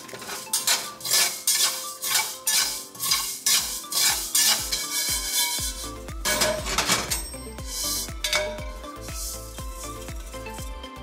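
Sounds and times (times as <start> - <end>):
spatula scraping rice in wok: 0.0 - 6.5, 7.7 - 8.1, 8.8 - 10.6.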